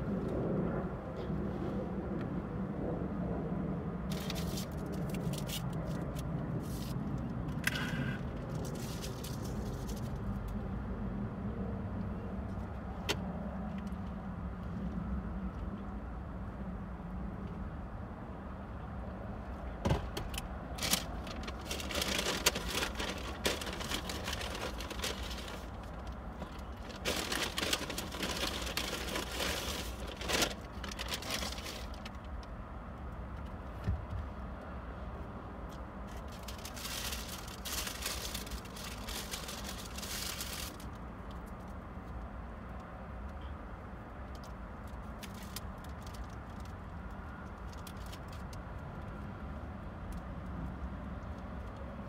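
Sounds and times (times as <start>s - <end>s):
cars passing tyre noise: 0.0s - 52.0s
low steady rumble: 0.0s - 52.0s.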